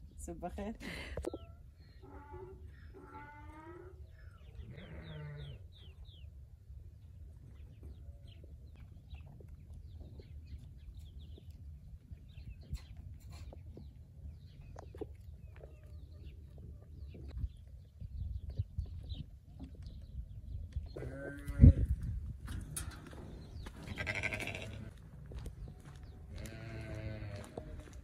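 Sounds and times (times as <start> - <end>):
sheep and goats bleating: 4.6 - 5.6, 21.0 - 21.9, 23.8 - 24.9, 26.3 - 28.0.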